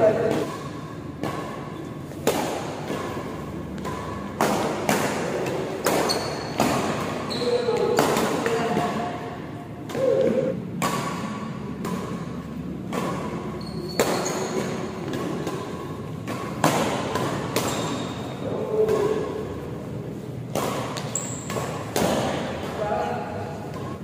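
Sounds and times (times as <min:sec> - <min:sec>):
racket striking shuttlecock: 0:00.1 - 0:09.2, 0:09.8 - 0:22.8
shoe squeaks: 0:06.0 - 0:06.6, 0:07.2 - 0:08.0, 0:13.5 - 0:15.0, 0:17.6 - 0:18.5, 0:21.0 - 0:21.7.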